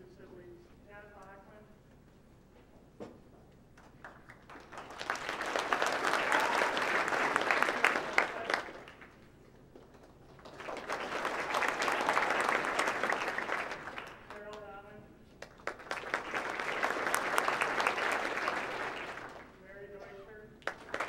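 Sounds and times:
audience applauding: 3.8s - 14.6s, 15.4s - 19.6s, 20.6s - 21.0s.

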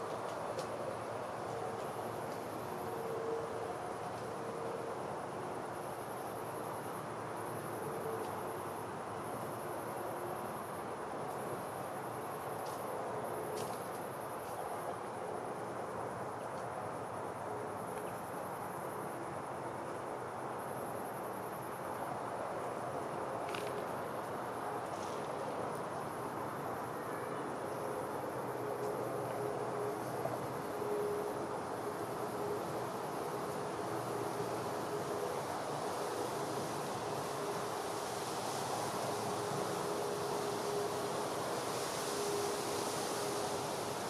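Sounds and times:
insects trilling: 26.0s - 44.0s.

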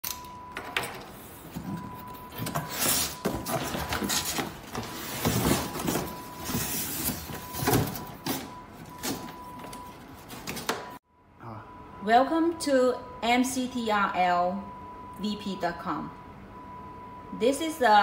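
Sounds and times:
box sliding and bumping: 1.6s - 9.4s
cardboard flaps rustling: 2.4s - 10.8s.

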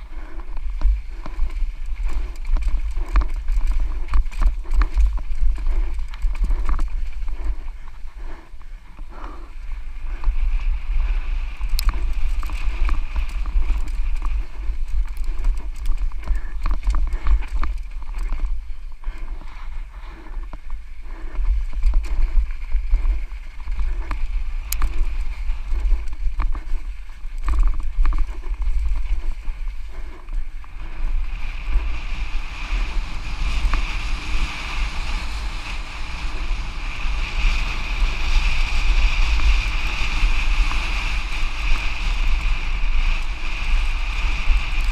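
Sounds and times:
bike tyres rolling over dirt: 0.0s - 44.9s
wind buffeting microphone: 0.0s - 44.9s
bike clicks and knocks: 0.1s - 9.3s, 11.6s - 30.8s.

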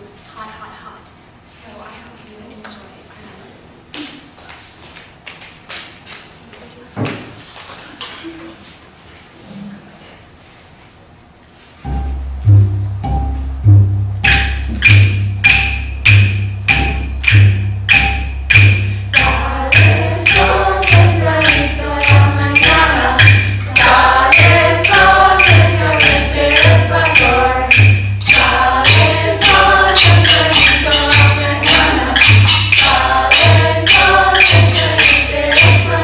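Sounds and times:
hand drums beating: 11.9s - 36.0s
group of voices singing: 18.6s - 36.0s.

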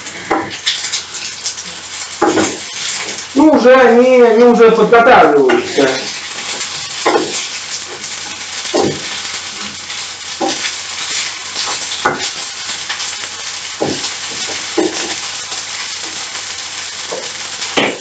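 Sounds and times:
pasta sizzling in a frying pan: 0.0s - 18.0s.

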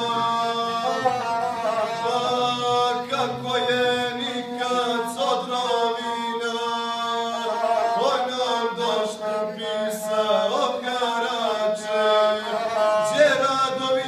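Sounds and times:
bowed single-string fiddle: 0.0s - 14.0s
man singing chanted song: 0.0s - 14.0s.

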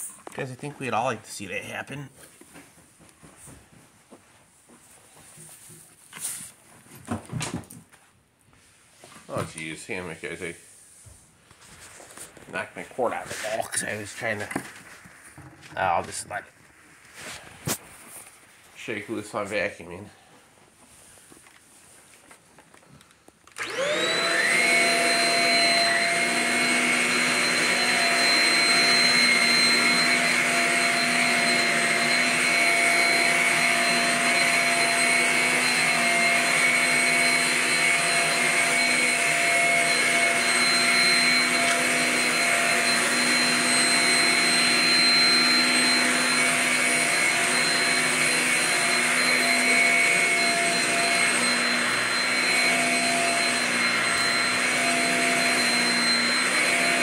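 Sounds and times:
stick vacuum motor whining: 23.4s - 57.0s.

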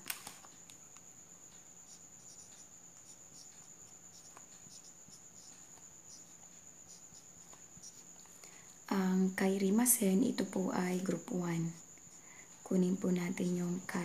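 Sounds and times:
faint low hum: 0.0s - 14.0s
marker writing on a whiteboard: 1.5s - 8.3s.

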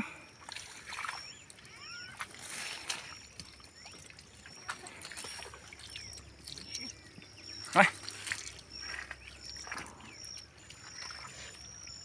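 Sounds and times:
faint trickling water: 0.0s - 12.0s.

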